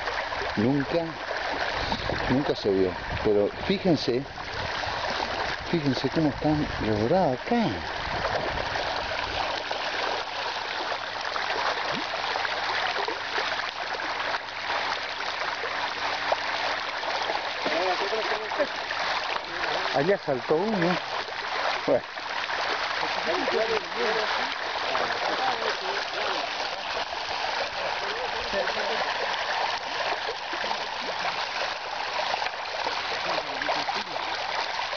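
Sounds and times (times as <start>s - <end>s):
fish splashing water: 0.0s - 6.8s, 7.4s - 34.9s.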